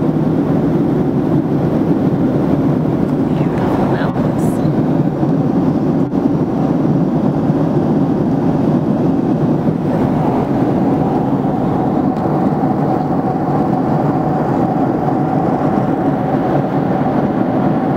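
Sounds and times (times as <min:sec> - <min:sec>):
airliner cabin engine and airflow noise: 0:00.0 - 0:17.9
faint steady hum: 0:00.1 - 0:06.4.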